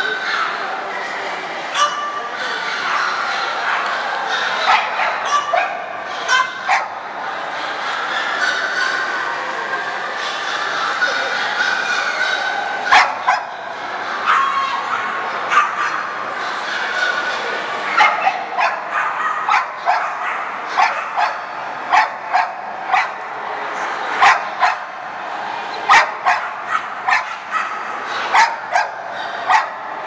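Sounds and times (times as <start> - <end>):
background hubbub: 0.0 - 30.0
dog barking and yipping: 4.7 - 7.0, 18.0 - 23.2, 24.2 - 24.9, 25.9 - 29.8.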